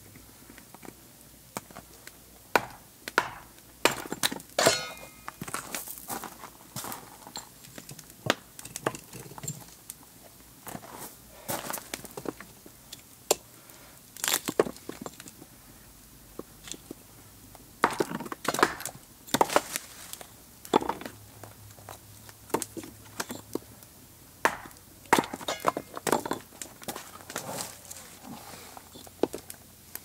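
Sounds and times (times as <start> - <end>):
hatchet splitting wood: 2.5 - 4.8, 17.8 - 19.6, 24.4 - 26.4
wood pieces knocking on stump: 24.4 - 27.0
wood handling noises: 24.4 - 29.6.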